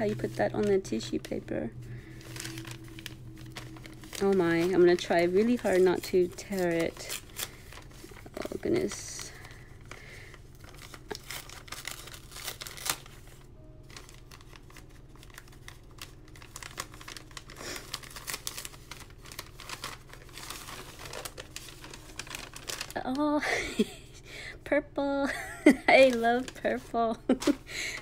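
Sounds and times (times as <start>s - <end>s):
tissue paper crinkling: 0.0s - 23.9s, 25.3s - 28.0s
sticky tape being peeled: 10.6s - 23.2s.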